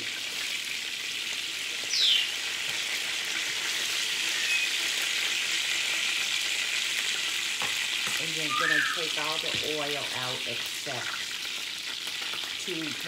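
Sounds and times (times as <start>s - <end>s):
hot oil sizzling in a skillet: 0.0s - 13.0s
high falling squeak: 8.4s - 9.1s.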